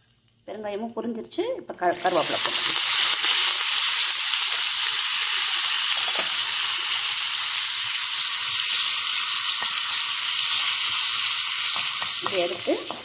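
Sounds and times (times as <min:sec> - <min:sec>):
leaves sizzling in hot oil: 0:01.9 - 0:13.0
steel spoon stirring: 0:09.2 - 0:12.5.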